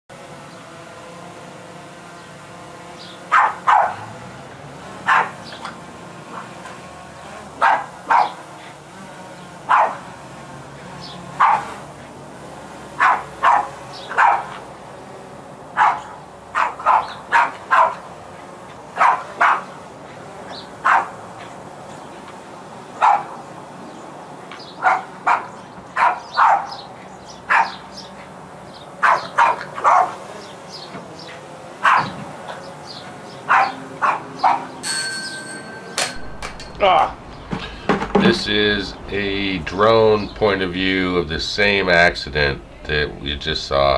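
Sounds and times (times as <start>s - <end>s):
dog barking: 3.3s - 4.2s, 5.0s - 5.6s, 7.6s - 8.5s, 9.7s - 10.1s, 11.3s - 11.8s, 13.0s - 14.7s, 15.8s - 18.1s, 19.0s - 19.8s, 20.5s - 21.6s, 23.0s - 23.5s, 24.8s - 28.2s, 29.0s - 30.3s, 31.8s - 32.2s, 33.4s - 34.8s.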